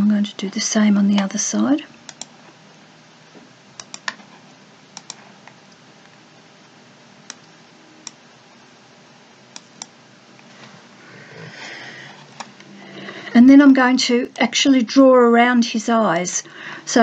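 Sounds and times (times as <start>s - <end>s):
faint steady hiss: 0.0s - 17.0s
computer mouse clicking: 2.1s - 2.3s, 3.8s - 4.2s, 5.0s - 5.8s, 7.3s - 8.2s, 9.5s - 9.9s.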